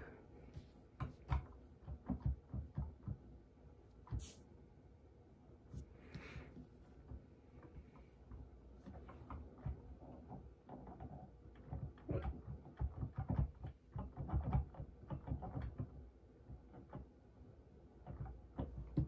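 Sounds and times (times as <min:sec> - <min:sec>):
fingers tapping on keys: 0:01.0 - 0:04.2, 0:08.0 - 0:17.3, 0:17.9 - 0:19.0.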